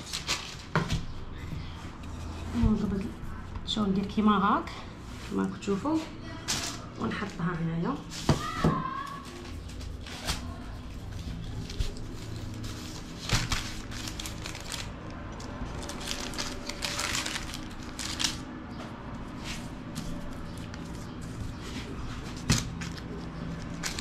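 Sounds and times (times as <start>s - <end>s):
dough rustling and scraping: 0.0s - 24.0s.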